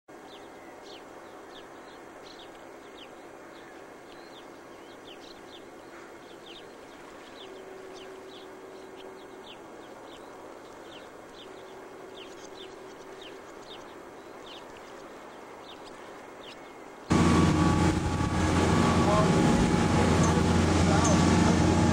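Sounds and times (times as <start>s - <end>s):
small birds chirping: 0.2s - 17.1s.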